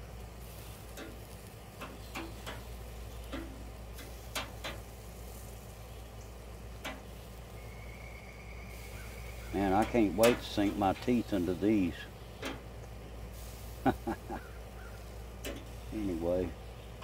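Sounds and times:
faint steady background noise: 0.0 - 17.0
metal tongs clicking on grill grate: 0.8 - 5.0, 6.8 - 7.2, 9.7 - 11.4, 12.4 - 13.0, 15.0 - 15.8.

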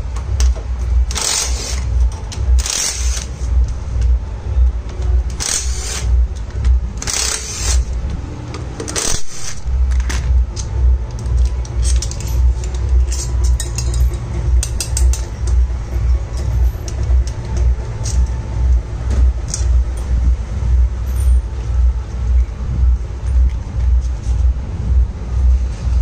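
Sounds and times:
low hum: 0.0 - 26.0
impact driver running: 7.0 - 7.9
metal bolts clinking on concrete: 10.6 - 15.6.

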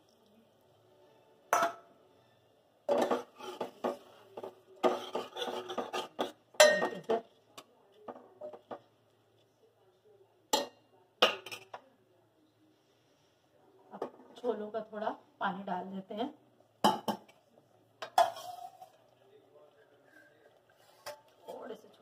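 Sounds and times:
metal spoon scraping metal pot: 2.9 - 4.1, 4.8 - 6.9, 18.2 - 19.0.

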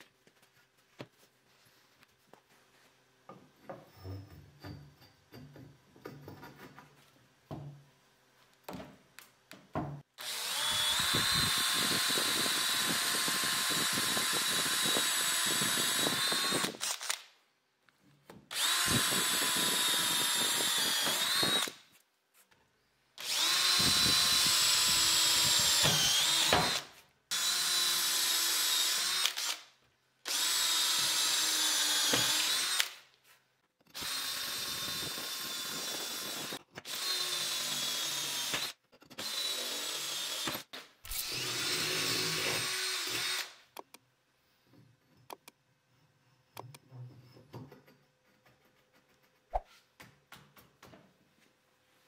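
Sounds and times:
drill driving screws into wood: 10.2 - 17.3, 18.5 - 21.8, 23.2 - 33.1, 33.8 - 43.9.

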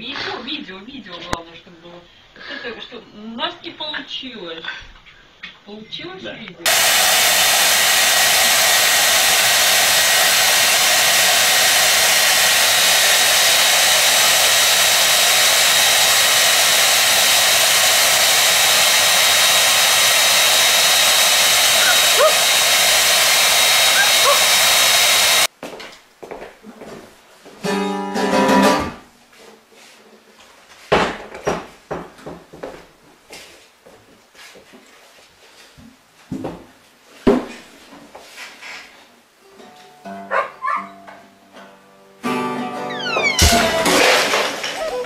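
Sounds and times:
hair dryer blowing: 6.6 - 25.5, 43.3 - 45.0
acoustic guitar: 27.6 - 29.1, 39.4 - 45.0.

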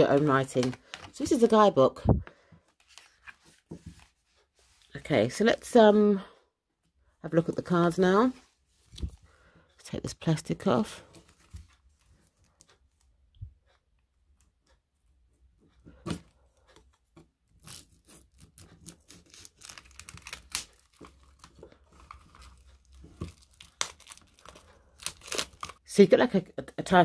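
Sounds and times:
plastic wrap crinkling and tearing: 17.6 - 25.8
plastic wrap snapping: 18.5 - 25.8.

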